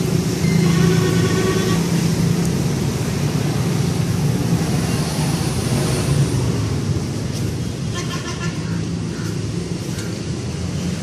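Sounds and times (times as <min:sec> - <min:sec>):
traffic engine hum: 0:00.0 - 0:11.0.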